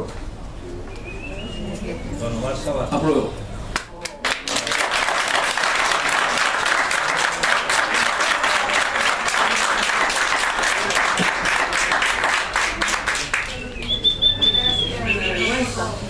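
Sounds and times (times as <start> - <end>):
crowd applauding: 3.8 - 14.3.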